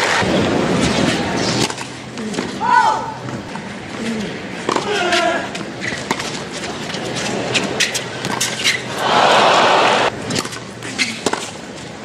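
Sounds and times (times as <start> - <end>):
tennis ball bouncing: 4.6 - 9.0, 10.3 - 11.6
racket hitting tennis ball: 4.6 - 11.6
crowd applause: 9.0 - 10.1.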